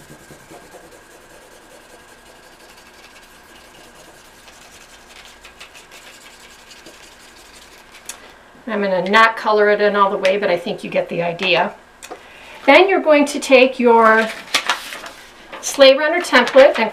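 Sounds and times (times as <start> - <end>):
marker scratching on paper plate: 0.0 - 8.0.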